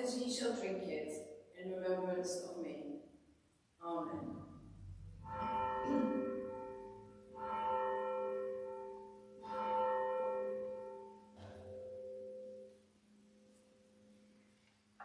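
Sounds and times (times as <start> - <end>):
bell ringing: 5.2 - 12.6.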